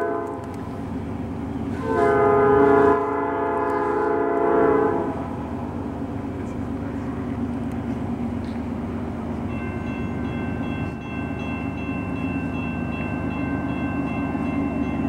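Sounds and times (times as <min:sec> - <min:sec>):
diesel train rumbling: 0:00.0 - 0:15.0.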